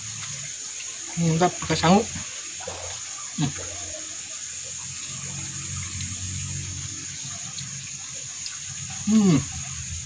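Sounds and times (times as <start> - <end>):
constant high whine: 0.0 - 10.0
flowing water rushing: 0.0 - 10.0.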